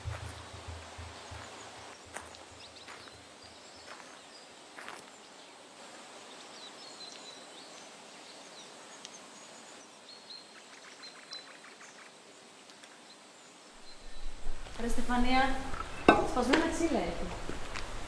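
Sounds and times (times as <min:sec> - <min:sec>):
soft knocks or steps: 0:00.0 - 0:02.4
faint bird chirps: 0:06.2 - 0:16.2.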